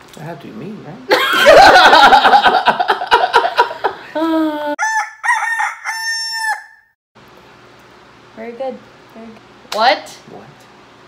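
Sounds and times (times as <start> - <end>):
people laughing loudly: 1.1 - 4.4
rooster crowing: 4.8 - 7.0.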